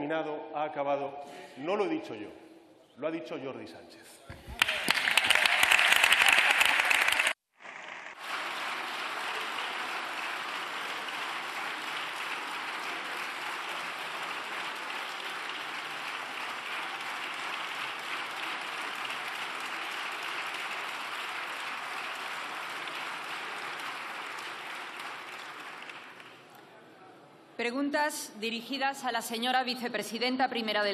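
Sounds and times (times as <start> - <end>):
crowd applauding: 4.4 - 26.6.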